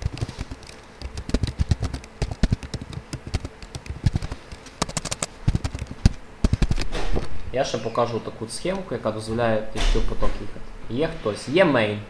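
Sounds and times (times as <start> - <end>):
keyboard key clicks: 0.0 - 6.9.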